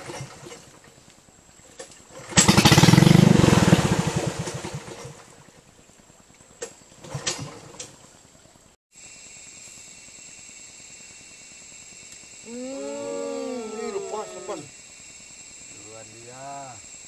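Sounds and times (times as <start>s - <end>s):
small boat engine revving: 2.1s - 5.3s.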